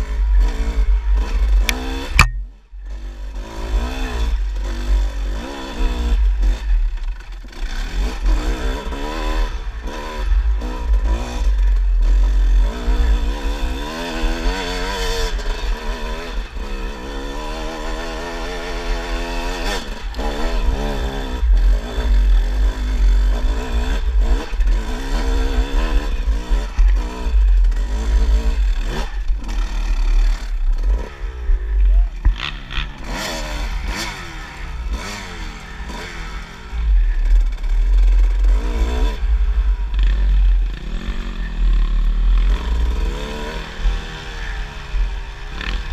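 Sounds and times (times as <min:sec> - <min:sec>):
dirt bike engine revving: 0:00.0 - 0:45.9
heavy low rumble: 0:30.3 - 0:33.0.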